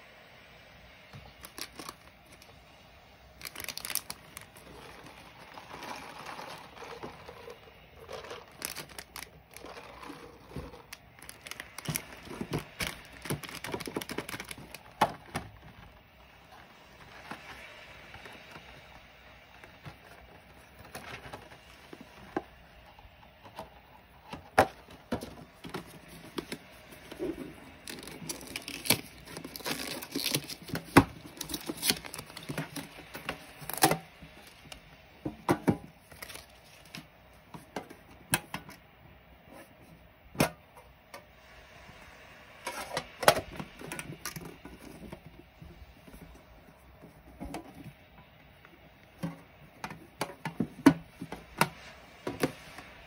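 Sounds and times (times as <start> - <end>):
plastic packaging crinkling: 1.2 - 2.6, 3.3 - 22.8, 24.6 - 34.9, 36.0 - 37.2.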